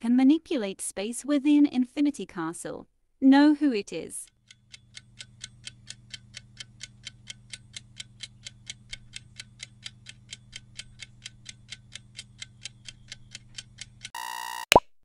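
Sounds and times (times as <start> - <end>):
timer ticking: 4.3 - 14.7.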